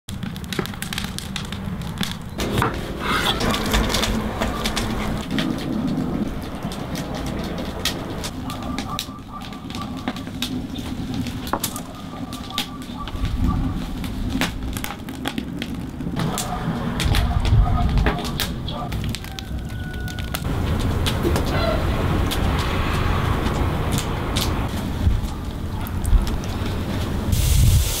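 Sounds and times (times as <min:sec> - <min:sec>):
wood fire crackling and popping: 0:00.1 - 0:28.0
wind rumble on microphone: 0:03.3 - 0:28.0
fish sizzling on a grill: 0:19.2 - 0:28.0.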